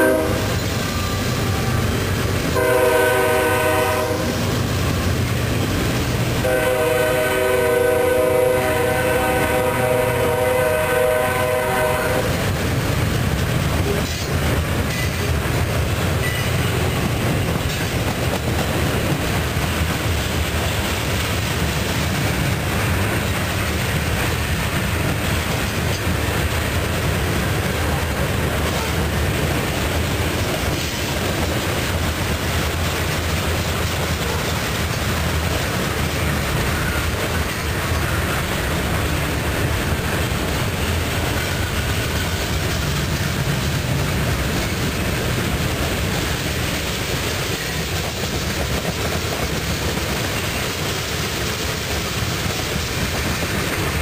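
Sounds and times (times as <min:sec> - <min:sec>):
freight train wheels rumbling: 0:00.0 - 0:54.0.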